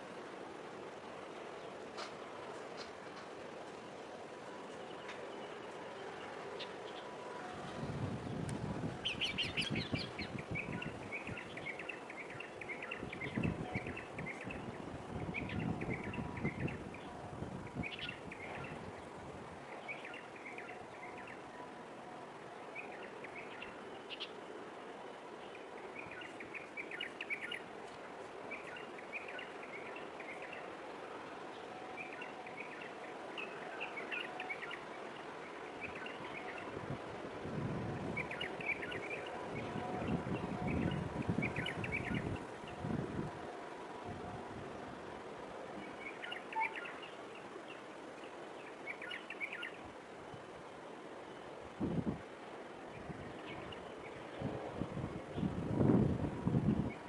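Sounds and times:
small birds chirping: 8.2s - 17.1s, 22.7s - 27.8s, 45.8s - 50.4s.

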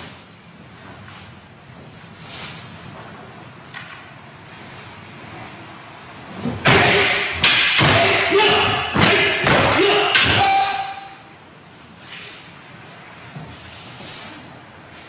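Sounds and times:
wooden swords striking: 6.5s - 11.2s
person shouting: 6.7s - 11.2s.

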